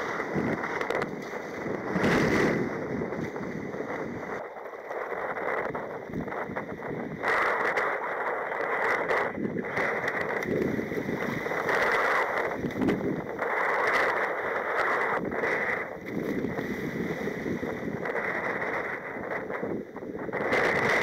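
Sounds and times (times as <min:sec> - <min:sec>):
small surf breaking: 0:00.0 - 0:04.4, 0:09.2 - 0:19.4
water rushing around kayak: 0:00.0 - 0:21.0
wind buffeting microphone: 0:00.0 - 0:21.0.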